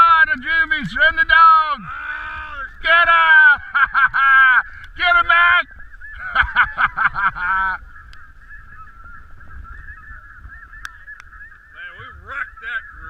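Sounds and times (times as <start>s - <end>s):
snow geese calling: 0.0s - 13.0s.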